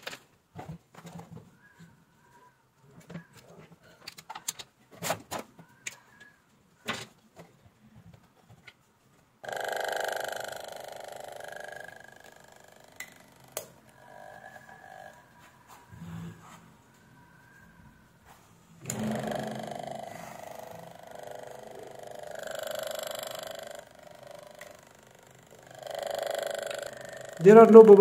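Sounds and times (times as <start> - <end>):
air pump buzzing: 9.4 - 16.5, 18.8 - 28.0.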